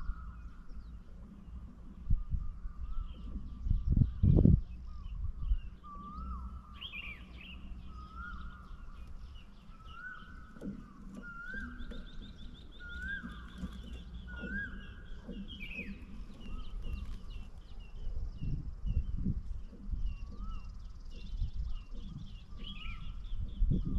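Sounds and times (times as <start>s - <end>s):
birds chirping: 0.0s - 23.9s
bird trilling: 2.2s - 18.0s, 19.7s - 23.9s
bird rising call: 4.8s - 18.0s.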